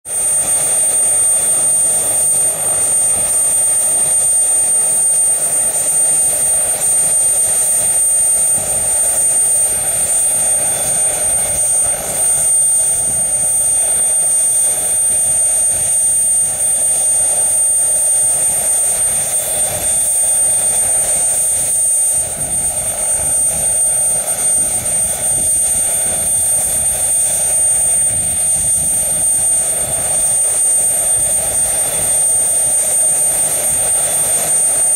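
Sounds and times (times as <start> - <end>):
helicopter engine running: 0.0 - 34.9
helicopter rotors turning: 0.1 - 34.9
high-pitched turbine whine: 0.1 - 34.9.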